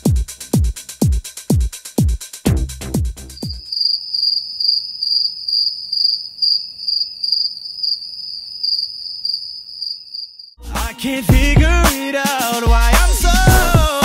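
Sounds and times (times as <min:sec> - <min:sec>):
electronic dance music: 0:00.0 - 0:03.6, 0:10.6 - 0:14.0
crickets chirping sound effect: 0:03.4 - 0:10.6.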